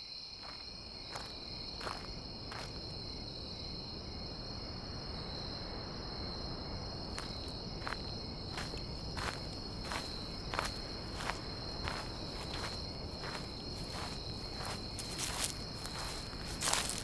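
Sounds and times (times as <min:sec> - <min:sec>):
crickets chirring: 0:00.0 - 0:17.0
footsteps walking: 0:07.2 - 0:17.0.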